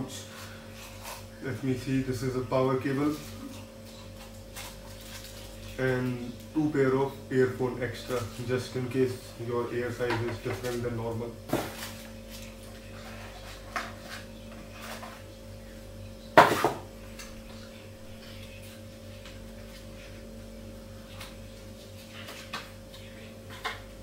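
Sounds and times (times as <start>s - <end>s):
steady low hum: 0.0s - 24.0s
plastic packaging clicks and rustles: 4.2s - 5.8s.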